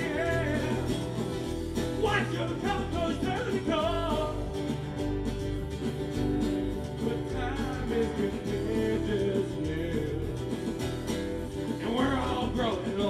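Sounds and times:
person singing: 0:00.0 - 0:04.7, 0:06.9 - 0:10.8, 0:11.7 - 0:13.0
acoustic guitar: 0:00.0 - 0:13.0
bass line: 0:00.0 - 0:13.0
electric guitar: 0:00.0 - 0:13.0.

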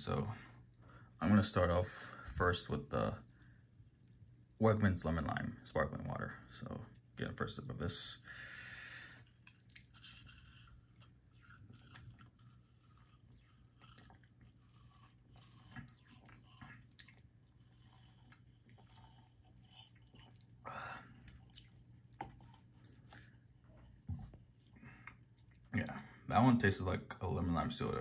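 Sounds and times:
low steady hum: 0:00.0 - 0:28.0
person sipping water: 0:09.0 - 0:25.8
wet clicks and lip smacks: 0:09.2 - 0:14.6, 0:15.3 - 0:17.6, 0:18.2 - 0:25.8.

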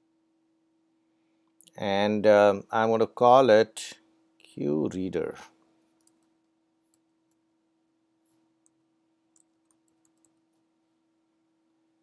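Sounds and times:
faint steady hum: 0:00.0 - 0:12.0
keystrokes on computer keyboard: 0:06.0 - 0:07.5, 0:08.6 - 0:10.6.

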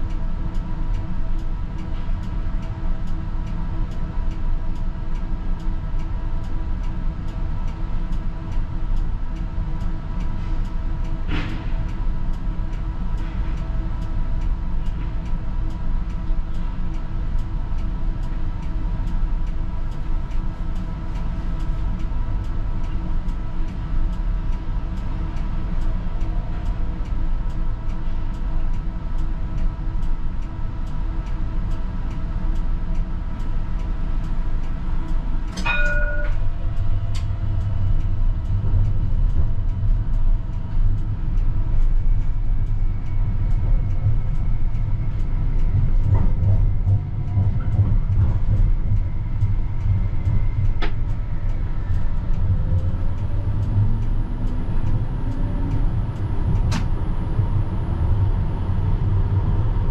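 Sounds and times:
tram wheels rumbling on rails: 0:00.0 - 0:59.9
ringing note: 0:35.6 - 0:36.5.

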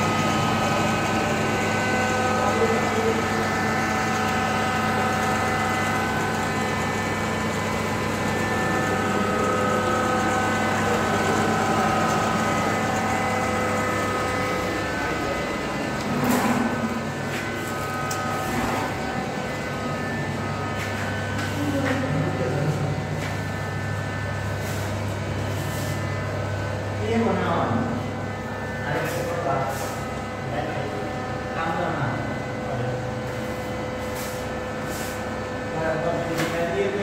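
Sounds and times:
spray machine motor humming: 0:00.0 - 0:27.4.

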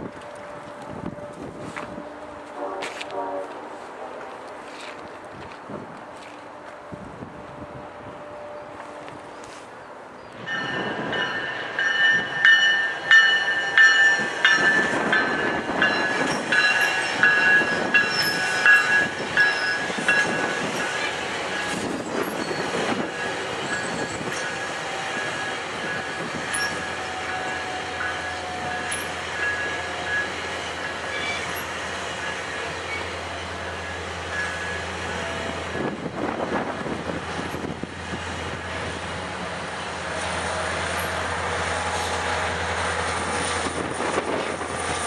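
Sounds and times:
train wheels squealing on rails: 0:07.8 - 0:39.0, 0:40.0 - 0:45.0
wheels clattering over rail joints: 0:40.2 - 0:42.0.

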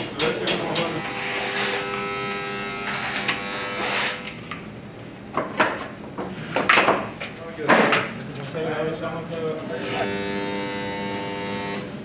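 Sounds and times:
electric motor humming: 0:09.7 - 0:12.0.

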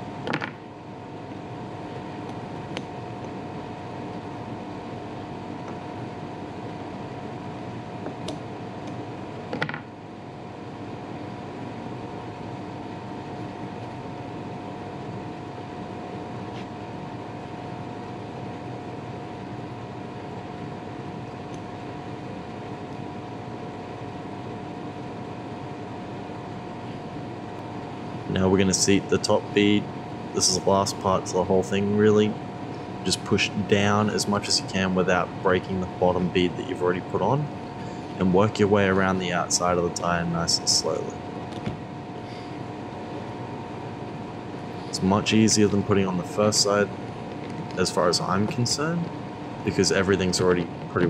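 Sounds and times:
steady machine hum: 0:00.0 - 0:51.0.

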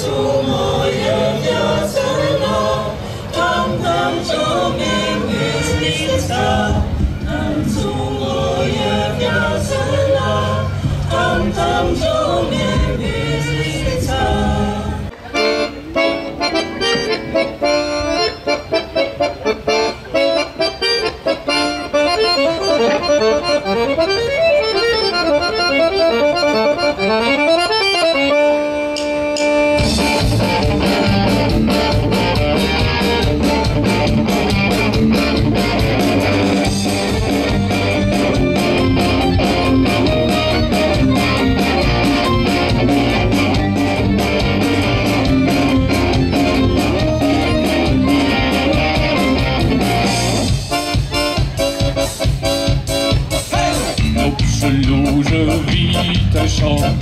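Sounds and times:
women's choir singing: 0:00.0 - 0:15.1
folk band playing: 0:00.0 - 0:57.0
solo accordion tune: 0:00.0 - 0:57.0.

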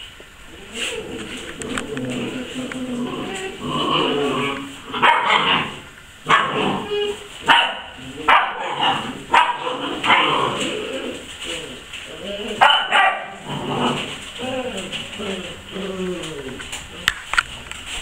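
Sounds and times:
puppy barking: 0:05.0 - 0:05.7, 0:06.3 - 0:10.5, 0:12.6 - 0:13.4.

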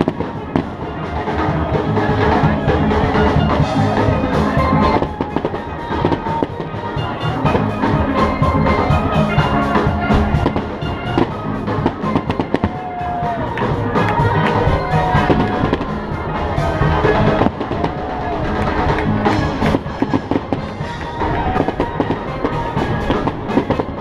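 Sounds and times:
fireworks bursting: 0:00.0 - 0:24.0
music with drum beat: 0:00.0 - 0:24.0.

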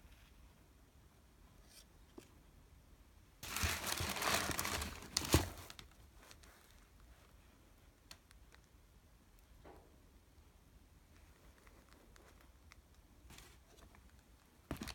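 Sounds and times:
tissue paper crinkling: 0:03.4 - 0:06.8.

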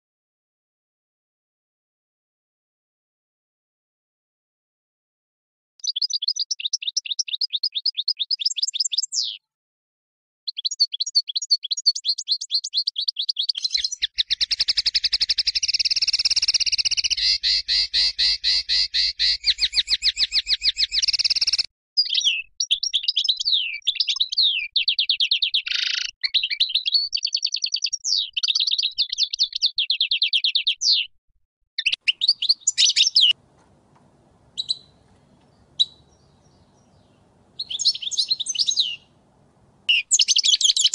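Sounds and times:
goldfinch singing: 0:10.5 - 0:31.1, 0:31.8 - 0:33.4, 0:34.6 - 0:39.1, 0:39.9 - 0:40.9.

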